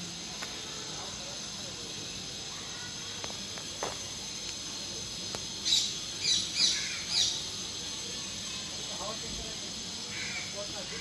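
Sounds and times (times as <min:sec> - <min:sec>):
steady high hiss: 0:00.0 - 0:11.0
bird chirping: 0:05.6 - 0:07.5.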